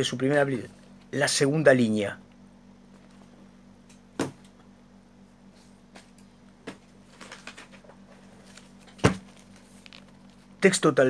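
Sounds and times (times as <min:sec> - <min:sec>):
rustling and handling noises: 0:02.8 - 0:03.5, 0:05.4 - 0:10.9
book knocking down on surface: 0:04.2 - 0:04.4, 0:09.0 - 0:09.5.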